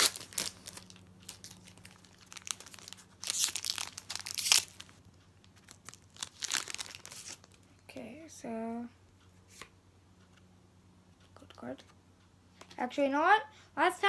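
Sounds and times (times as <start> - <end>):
foil wrapper crinkling and tearing: 0.0 - 5.0, 5.6 - 7.6.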